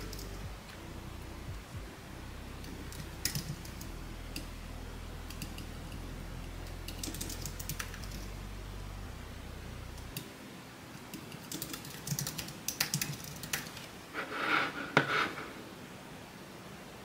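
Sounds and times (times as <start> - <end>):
keyboard typing clicks: 2.6 - 4.5, 6.6 - 8.3, 11.1 - 13.9.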